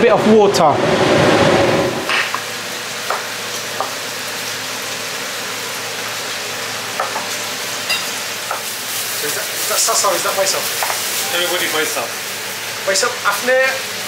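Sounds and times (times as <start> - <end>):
kitchen hiss: 2.1 - 14.0.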